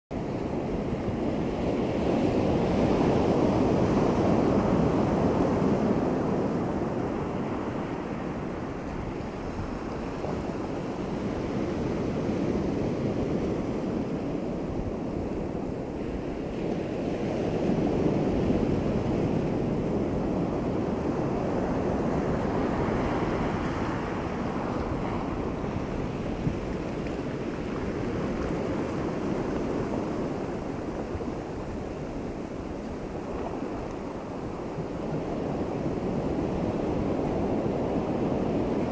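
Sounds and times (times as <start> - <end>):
sea surf washing over shore: 0.2 - 38.9.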